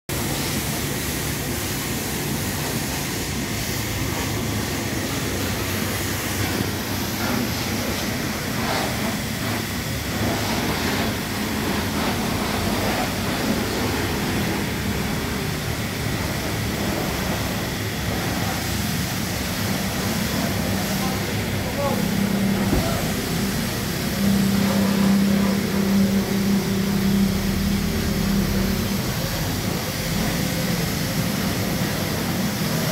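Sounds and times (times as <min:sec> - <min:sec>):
car wash rushing hiss: 0:00.1 - 0:32.9
low motor hum: 0:19.3 - 0:32.7.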